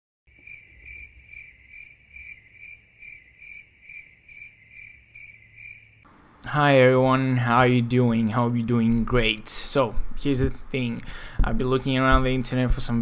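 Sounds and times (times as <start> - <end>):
crickets chirping: 0.3 - 6.1.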